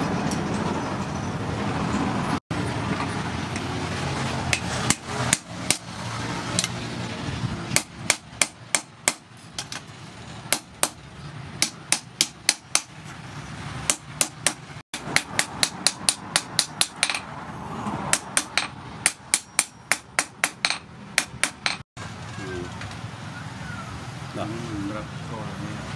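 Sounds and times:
hammer striking hot steel on anvil: 11.6 - 12.9, 13.9 - 17.3, 18.1 - 21.8.

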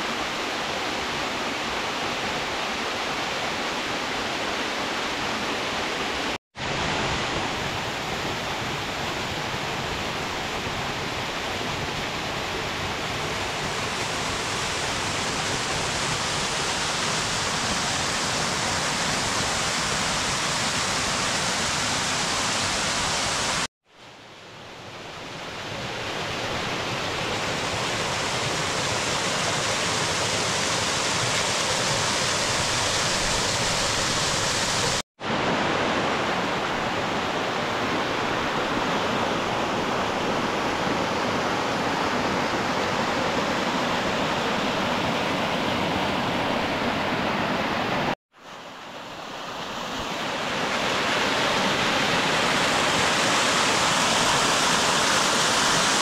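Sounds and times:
water rushing over rock: 26.3 - 45.0, 50.0 - 56.0.

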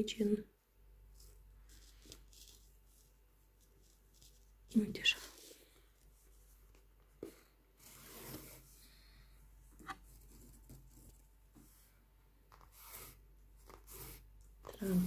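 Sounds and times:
hands rustling yarn: 1.0 - 15.0.

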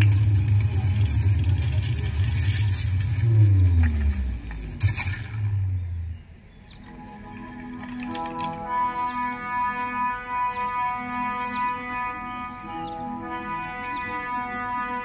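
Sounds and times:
low engine-like rumble: 0.0 - 6.7.

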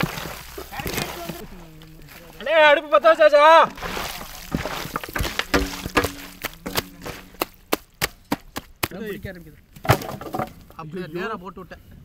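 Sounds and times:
sharp knocks and clatters: 3.8 - 9.0.

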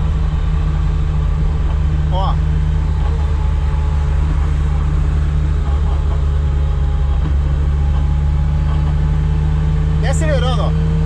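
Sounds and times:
car engine low drone: 0.0 - 11.0
road noise: 0.0 - 11.0.

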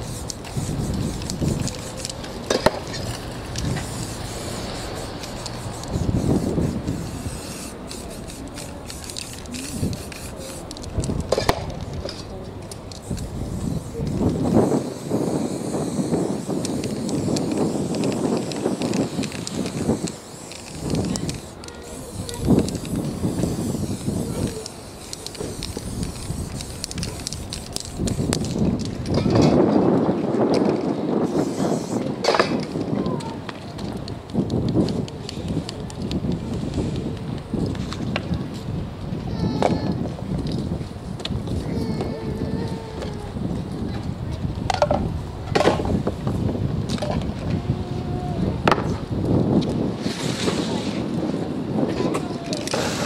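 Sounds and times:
spray paint can hissing: 0.0 - 29.2, 30.5 - 38.3, 52.0 - 53.0.

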